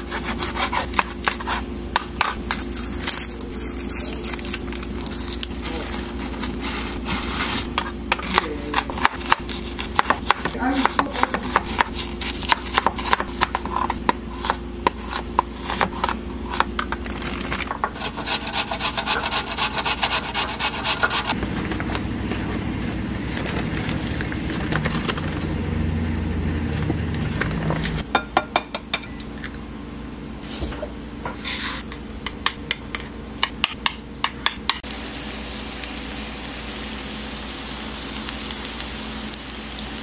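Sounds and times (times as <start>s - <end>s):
onion grated on metal grater: 0.0s - 1.6s, 5.0s - 16.7s, 18.0s - 21.4s
knife chopping onion on board: 7.7s - 16.8s.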